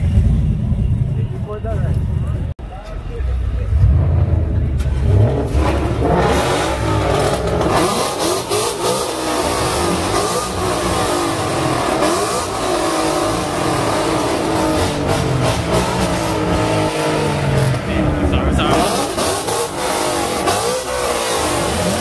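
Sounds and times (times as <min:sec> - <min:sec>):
low engine rumble: 0:00.0 - 0:07.8
car engines revving: 0:00.0 - 0:22.0.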